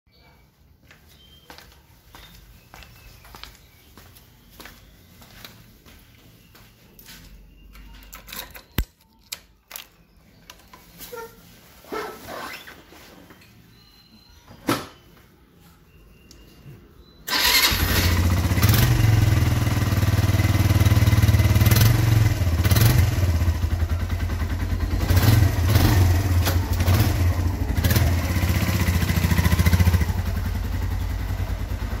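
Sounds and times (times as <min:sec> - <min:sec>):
motorcycle engine revving: 0:17.3 - 0:32.0.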